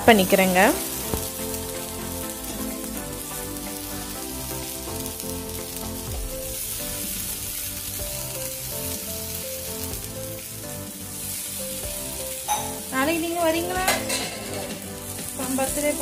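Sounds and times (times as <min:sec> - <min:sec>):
background music: 0:00.0 - 0:16.0
food sizzling in hot oil: 0:00.0 - 0:16.0.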